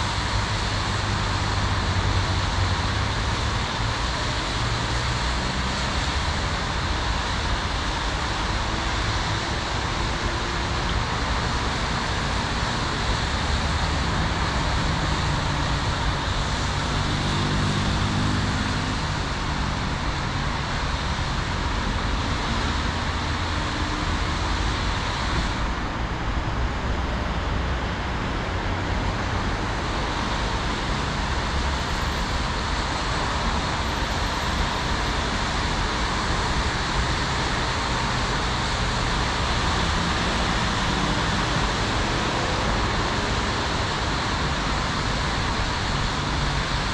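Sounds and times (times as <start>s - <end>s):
traffic engines: 0.0s - 46.9s
tyres hissing on wet road: 0.0s - 46.9s
vehicle engine passing: 12.3s - 20.1s.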